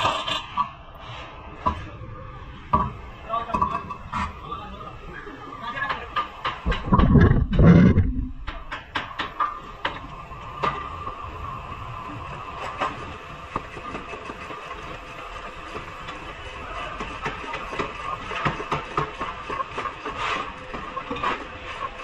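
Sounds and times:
workshop machine hum: 0:00.8 - 0:22.0
sharp metallic clicks and knocks: 0:06.2 - 0:10.0
dull low thump: 0:06.7 - 0:08.7.

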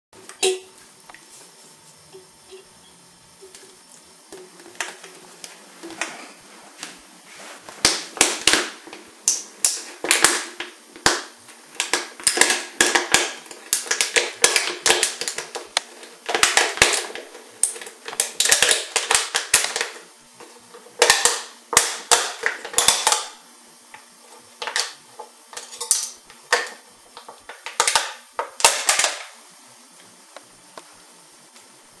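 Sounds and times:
tin lid cracking and clicking: 0:09.3 - 0:20.0, 0:21.0 - 0:23.3, 0:24.6 - 0:25.0, 0:25.6 - 0:29.3.

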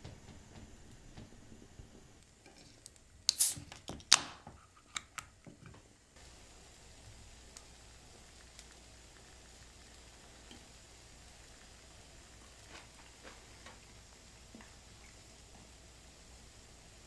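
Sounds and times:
carbonation hissing: 0:00.0 - 0:17.0
can tab clicks: 0:03.3 - 0:05.3.

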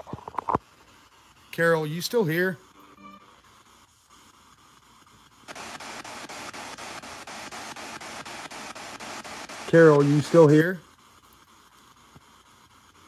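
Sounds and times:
faint hiss: 0:00.0 - 0:13.0
radio static: 0:05.5 - 0:10.8.

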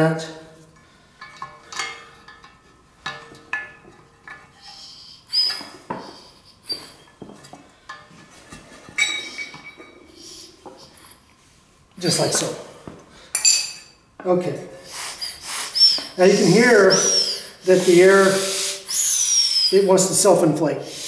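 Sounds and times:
wrench clinking on metal: 0:01.2 - 0:08.0, 0:09.0 - 0:10.0, 0:13.4 - 0:14.0.

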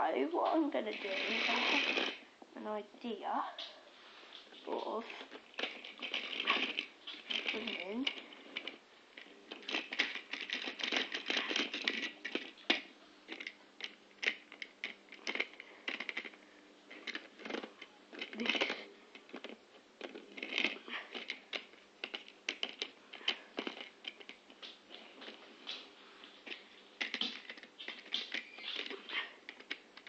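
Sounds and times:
model train wheels clicking on rails: 0:00.8 - 0:02.2.

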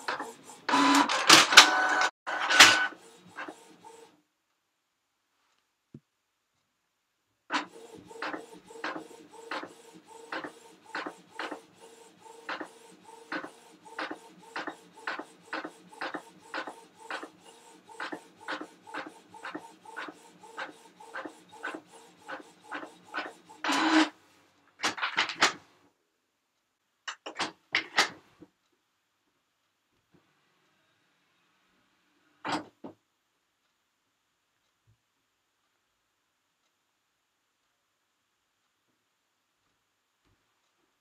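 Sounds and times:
printer clicks: 0:00.0 - 0:02.9, 0:24.8 - 0:25.6, 0:27.1 - 0:28.2
printer motor hum: 0:00.0 - 0:04.1, 0:07.5 - 0:24.1
printer whirring: 0:00.0 - 0:04.1, 0:07.5 - 0:24.2.

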